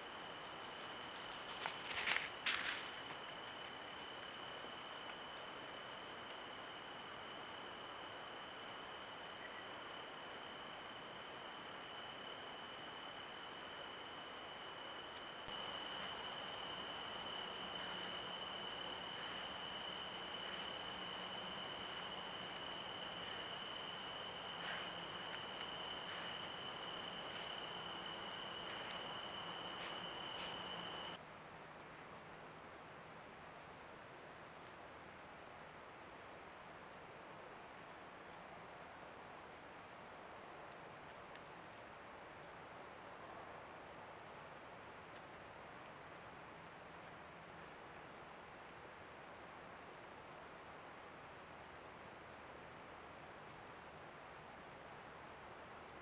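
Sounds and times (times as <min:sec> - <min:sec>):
crickets trilling: 0:00.0 - 0:31.2.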